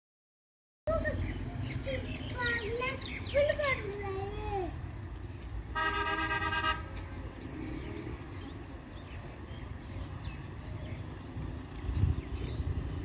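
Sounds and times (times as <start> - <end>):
distant traffic rumble: 0.9 - 13.0
vehicle horn: 5.7 - 7.0.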